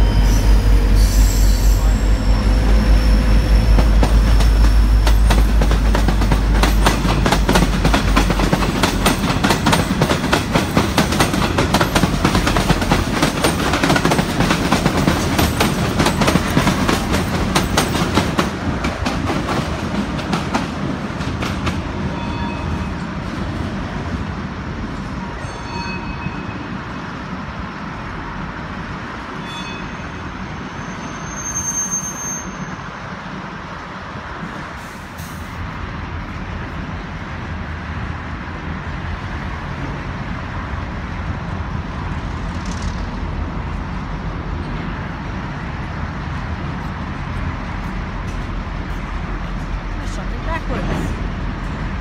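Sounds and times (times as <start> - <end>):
train wagons clattering over rails: 0.0 - 26.7, 41.9 - 52.0
diesel locomotive engine drone: 0.0 - 52.0.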